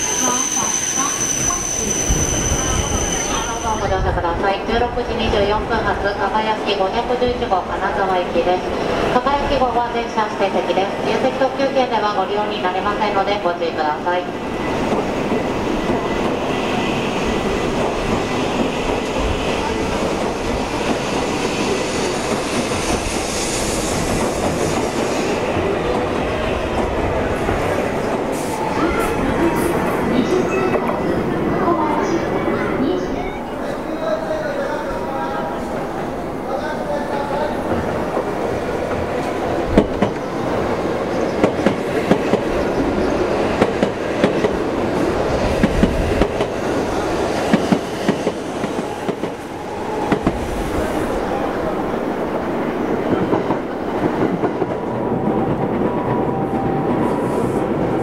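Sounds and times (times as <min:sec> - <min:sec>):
faint wheel squeal: 0:00.0 - 0:03.7
train wheels rumbling: 0:00.0 - 0:58.0.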